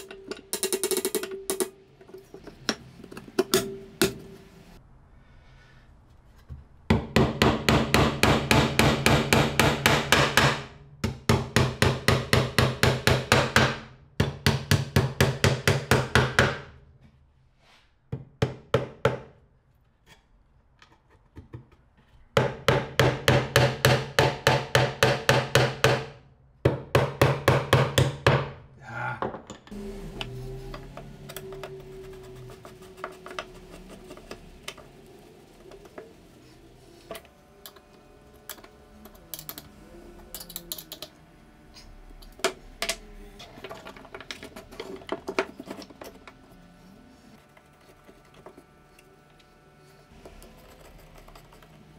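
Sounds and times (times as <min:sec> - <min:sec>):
hammer driving nails into wood: 0:06.9 - 0:16.7, 0:22.4 - 0:28.5.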